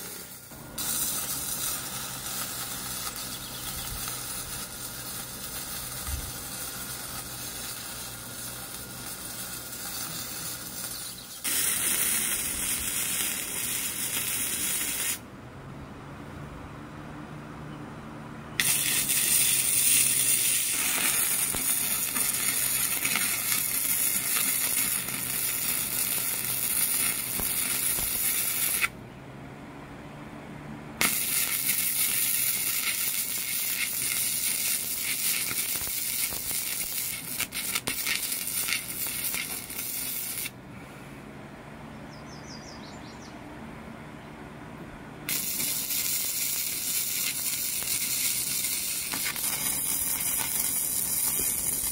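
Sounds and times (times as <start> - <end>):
arc welding crackling hiss: 0.0 - 15.2, 18.6 - 29.0, 31.0 - 40.6, 45.3 - 51.9
steady low hum: 0.0 - 31.0, 31.6 - 51.9.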